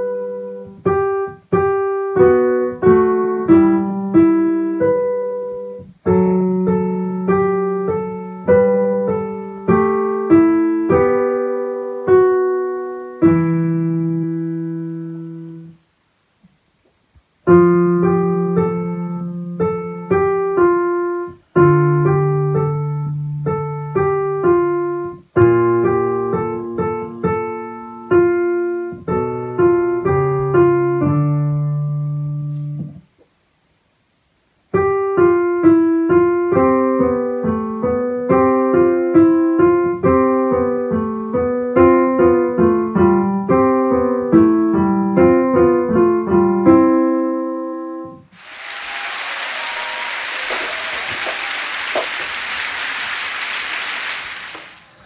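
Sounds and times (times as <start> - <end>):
steady rushing noise: 48.4 - 55.0.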